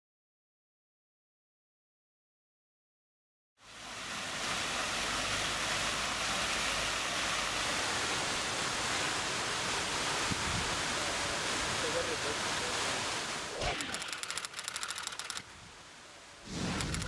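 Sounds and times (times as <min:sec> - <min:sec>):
fountain jets splashing: 0:03.6 - 0:15.4.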